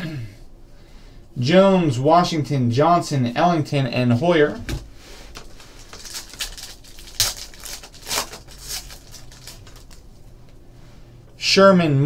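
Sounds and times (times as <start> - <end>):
foil wrapper crinkling and tearing: 5.3 - 10.3.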